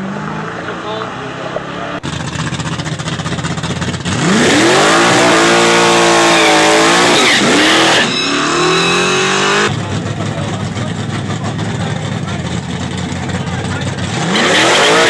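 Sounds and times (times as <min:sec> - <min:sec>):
car engine revving: 0:00.0 - 0:15.0
tyres squealing: 0:05.0 - 0:09.7.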